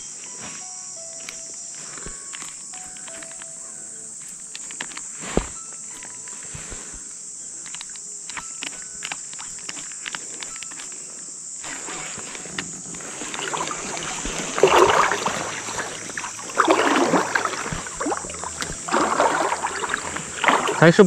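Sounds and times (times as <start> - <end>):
high-pitched insect chorus: 0.0 - 21.0
small clicks: 1.0 - 14.6.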